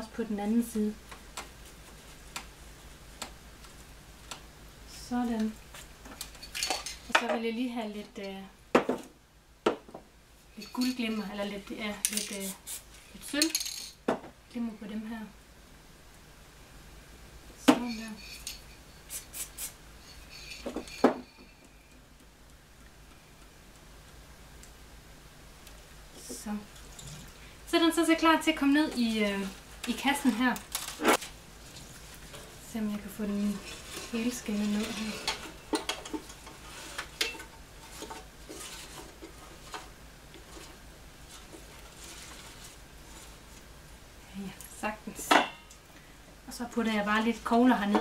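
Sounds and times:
aerosol spray can hissing: 12.4 - 12.9, 19.1 - 19.8
evergreen sprigs rustling: 28.1 - 43.9.

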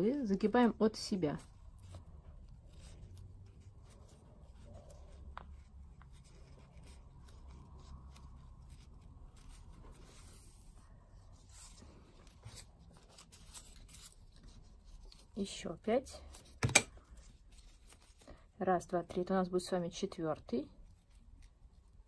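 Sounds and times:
ribbon rustling and rubbing: 0.0 - 22.0.

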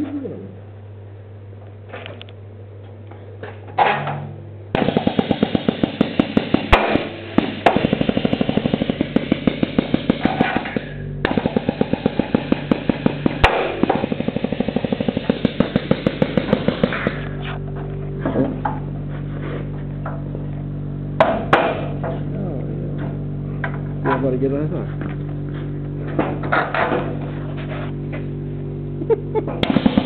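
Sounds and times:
riveting hammer blows on metal: 4.8 - 17.4.

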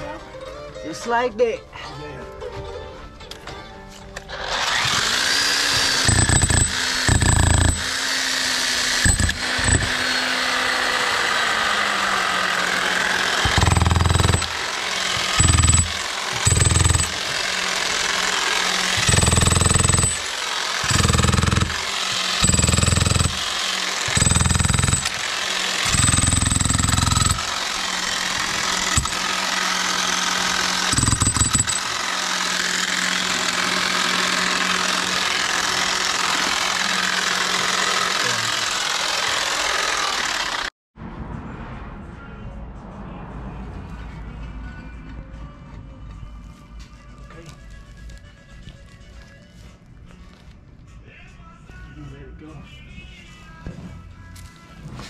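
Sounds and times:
demolition hammer chipping concrete: 4.6 - 40.7.

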